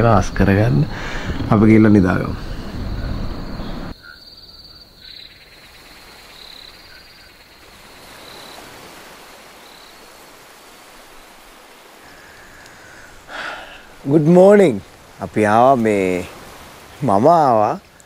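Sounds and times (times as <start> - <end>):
frogs chirping: 0.0 - 18.0
insect trill: 0.0 - 18.0
soft hiss: 5.6 - 18.0.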